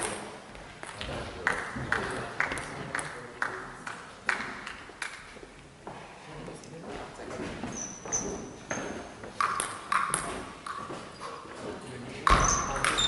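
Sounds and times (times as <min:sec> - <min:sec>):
table tennis ball bouncing: 0:08.7 - 0:11.1, 0:12.2 - 0:13.0.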